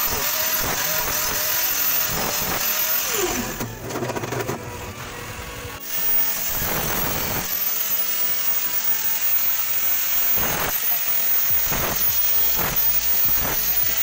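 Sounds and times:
angle grinder cutting sheet metal: 0.0s - 14.0s.

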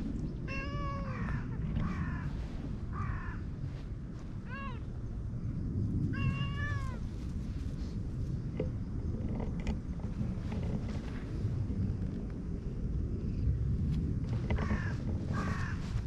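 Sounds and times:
cat meowing: 0.5s - 2.2s, 4.4s - 4.8s, 6.1s - 7.0s.

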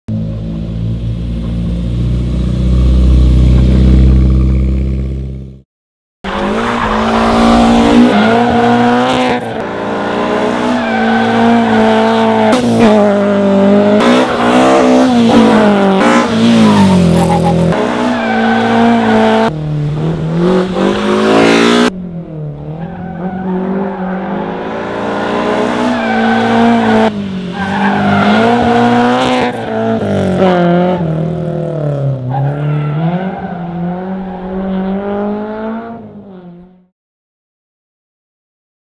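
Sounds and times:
race car engine revving hard: 6.3s - 22.0s, 23.4s - 36.8s.

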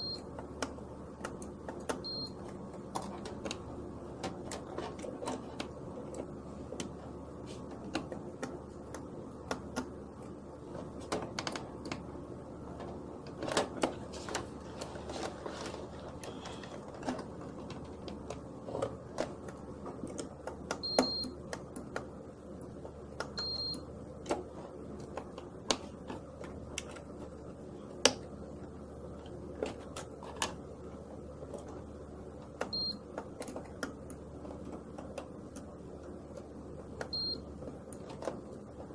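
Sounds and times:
multimeter beeps: 0.0s - 0.3s, 2.0s - 2.5s, 20.8s - 21.4s, 23.4s - 23.9s, 32.7s - 33.1s, 37.1s - 37.5s
low steady hum: 0.0s - 38.9s.

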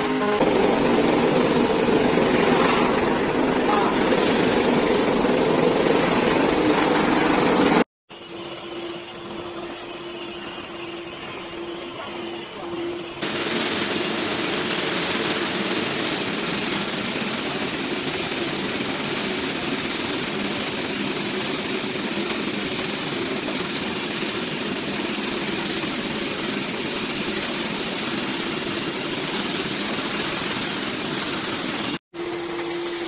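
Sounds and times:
industrial vacuum cleaner running: 0.0s - 7.9s, 9.3s - 33.0s.

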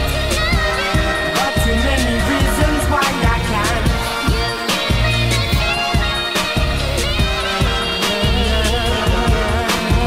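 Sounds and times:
pop music: 0.0s - 10.0s
steady drum beat: 0.0s - 10.0s.

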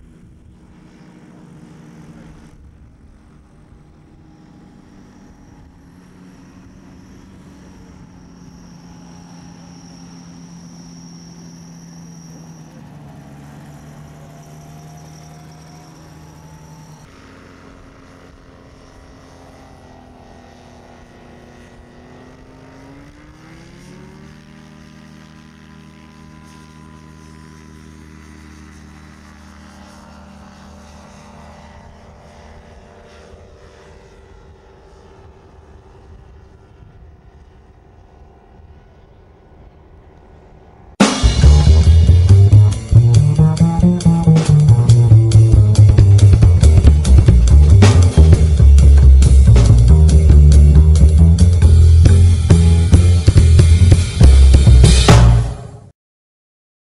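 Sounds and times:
ultralight engine and propeller: 0.0s - 55.9s.

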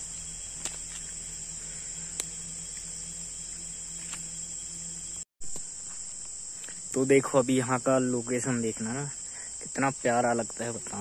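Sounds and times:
insects shrilling: 0.0s - 11.0s
faint ticks: 2.2s - 2.9s.

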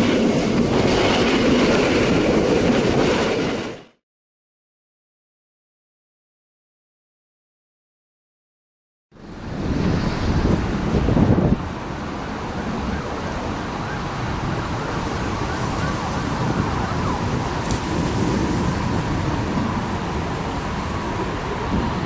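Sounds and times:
wind rumbling on microphone: 0.0s - 3.8s, 9.2s - 22.0s.

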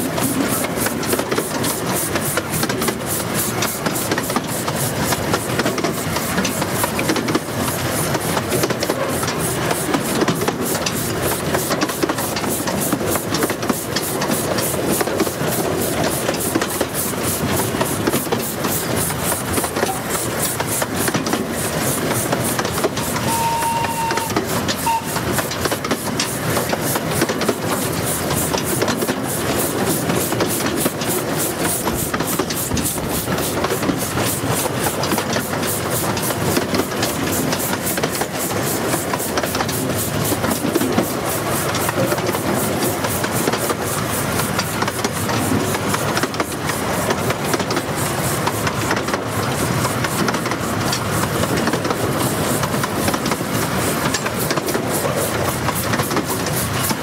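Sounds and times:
rushing rail noise: 0.0s - 57.0s
steam locomotive rhythmic beat: 0.0s - 57.0s.

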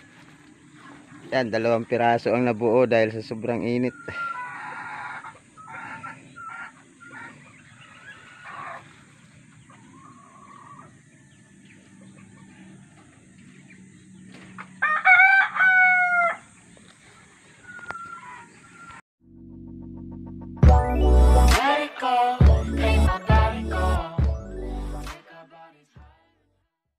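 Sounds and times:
chicken calls: 0.0s - 2.2s, 3.5s - 19.0s
rooster crowing: 14.7s - 16.6s, 17.6s - 19.0s.

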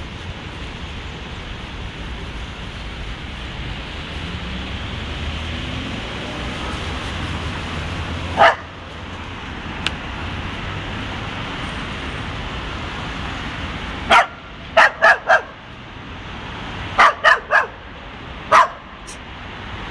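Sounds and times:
street traffic hum: 0.0s - 19.9s
dog barking: 8.3s - 8.8s, 14.1s - 15.6s, 17.0s - 17.8s, 18.5s - 19.0s.

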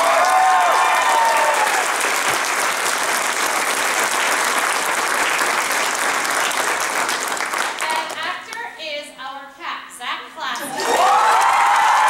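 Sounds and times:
cheering voices: 0.0s - 2.1s, 10.6s - 12.0s
audience applauding: 0.0s - 8.2s, 10.7s - 12.0s.

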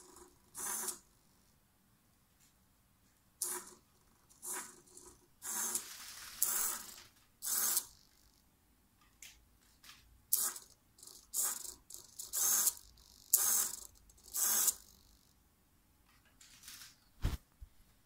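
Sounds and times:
micro servo buzzing: 0.6s - 1.0s, 5.4s - 8.1s, 10.3s - 15.1s.

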